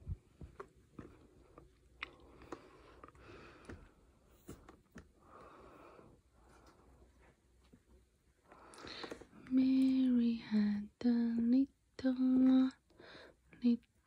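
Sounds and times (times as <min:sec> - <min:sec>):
baby chewing with mouth clicks: 0:00.4 - 0:04.0.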